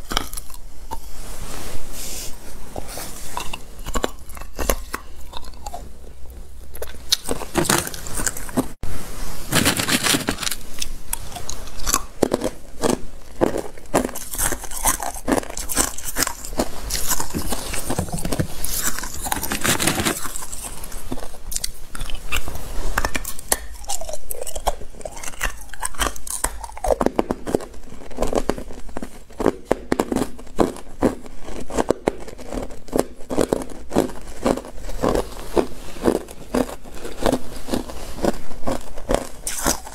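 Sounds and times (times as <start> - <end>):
ice being chewed: 0.0 - 1.5, 2.2 - 8.8, 9.5 - 39.9.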